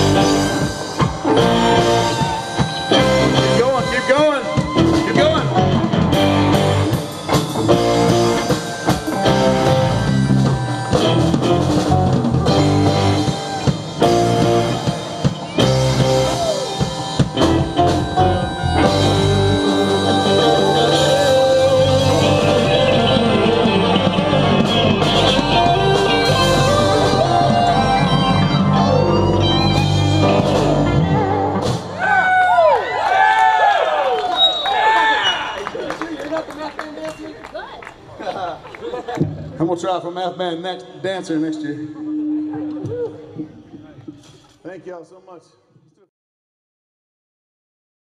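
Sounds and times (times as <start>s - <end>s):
live rock band playing: 0.0s - 32.7s.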